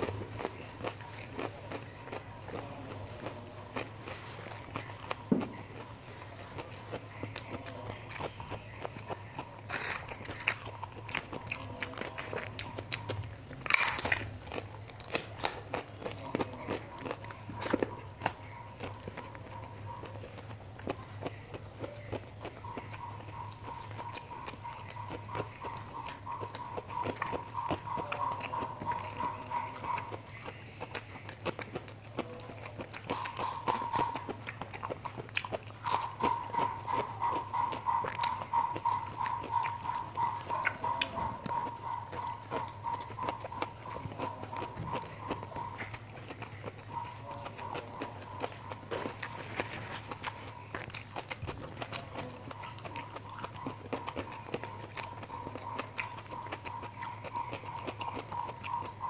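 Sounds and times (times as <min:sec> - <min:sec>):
chewing and crunching crackers: 0:00.0 - 0:59.0.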